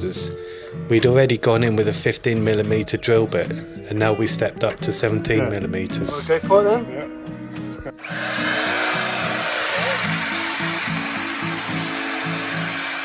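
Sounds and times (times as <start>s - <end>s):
guitar music: 1.6s - 13.0s
magnetic drill boring steel: 8.0s - 13.0s.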